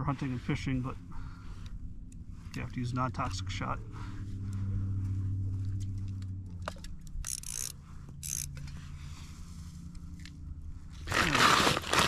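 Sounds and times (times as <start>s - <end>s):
fishing reel whirring: 7.2s - 8.7s.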